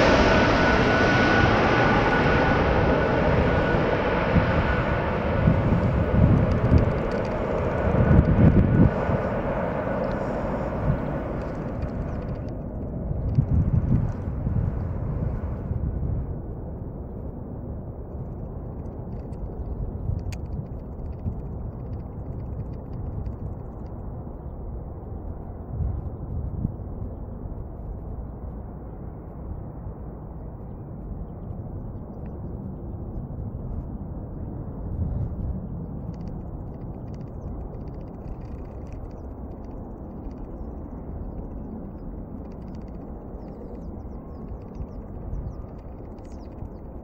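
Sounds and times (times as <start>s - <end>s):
distant jet engines rumbling: 0.0s - 47.0s
wind on microphone: 0.0s - 47.0s
faint ticks: 18.1s - 24.0s, 35.2s - 47.0s.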